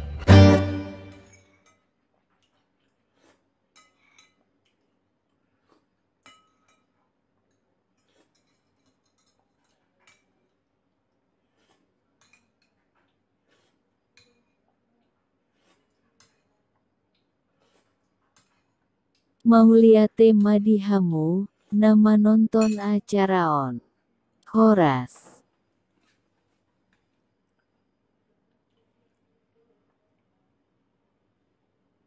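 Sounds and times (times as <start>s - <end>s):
cutlery clinking on plate: 3.7s - 4.8s, 6.2s - 10.5s, 11.7s - 13.1s, 14.1s - 14.6s, 15.8s - 16.6s.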